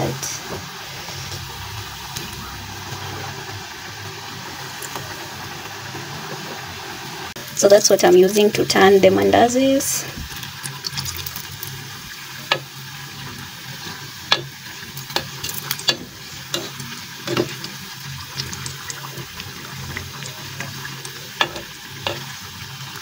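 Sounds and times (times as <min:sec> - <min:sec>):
dough sizzling in hot oil: 0:00.0 - 0:23.0
metal skimmer clinking on pot: 0:21.4 - 0:22.3.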